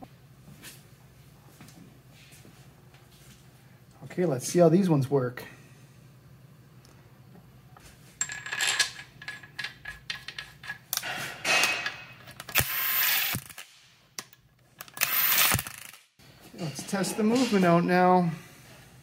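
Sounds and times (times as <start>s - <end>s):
cordless drill spinning bolts: 12.4s - 13.6s, 14.8s - 16.0s.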